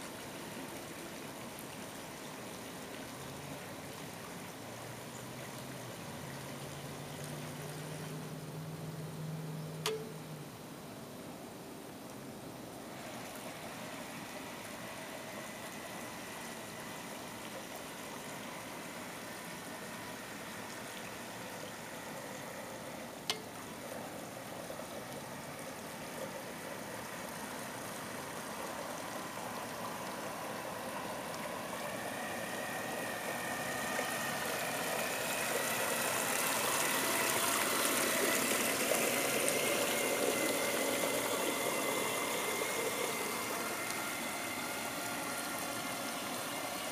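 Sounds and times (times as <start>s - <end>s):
motor whine: 0.0s - 10.6s, 12.8s - 46.9s
paddlewheel churning water: 0.0s - 46.9s
sharp click: 9.8s - 10.2s.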